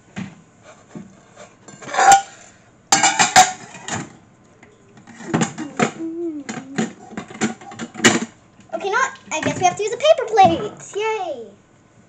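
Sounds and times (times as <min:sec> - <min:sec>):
dishes and cutlery clattering: 0:01.7 - 0:04.1, 0:05.0 - 0:08.3.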